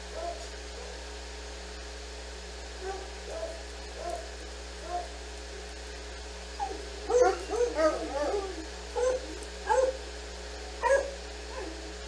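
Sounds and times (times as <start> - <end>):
dog yipping and whining: 6.6 - 10.0, 10.8 - 11.9.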